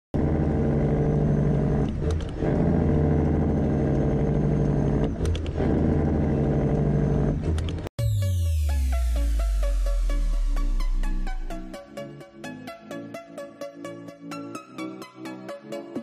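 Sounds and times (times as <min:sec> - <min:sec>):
truck diesel engine running: 0:00.2 - 0:07.9.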